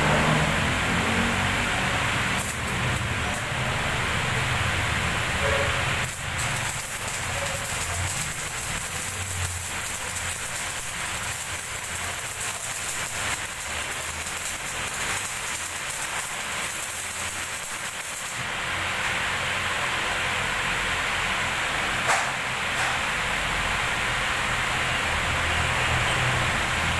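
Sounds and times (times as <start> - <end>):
steady shop noise hiss: 0.0 - 26.9
welding arc crackling: 0.1 - 21.3.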